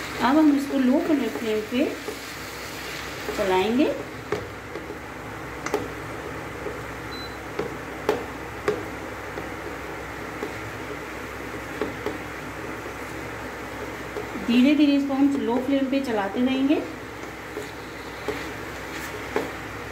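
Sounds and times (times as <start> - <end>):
ghee sizzling hiss: 0.0 - 4.3
wooden spatula scraping pan: 17.3 - 19.6.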